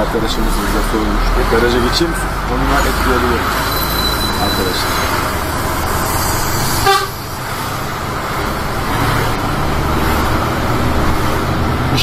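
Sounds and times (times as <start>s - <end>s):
truck diesel engine running: 0.0s - 12.0s
short truck horn toot: 6.8s - 7.2s.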